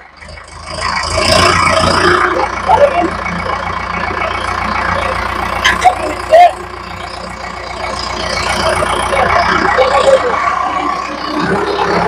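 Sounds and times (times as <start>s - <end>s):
vehicle engine running: 0.0s - 12.0s.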